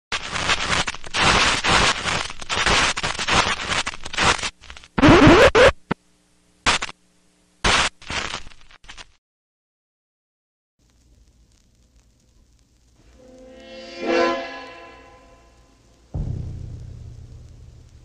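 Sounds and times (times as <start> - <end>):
short noise bursts: 0.1 - 5.9
harsh scratchy crackling noise: 0.1 - 6.0, 6.6 - 9.2, 10.8 - 18.0
sliding pitch burst: 13.0 - 18.0.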